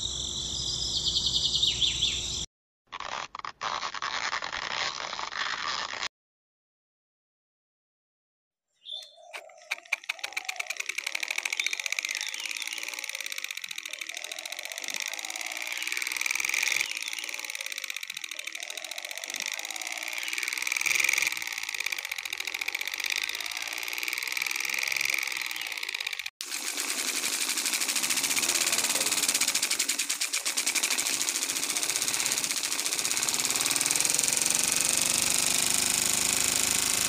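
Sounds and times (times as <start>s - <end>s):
small motor clattering: 2.9s - 6.1s, 9.0s - 37.0s.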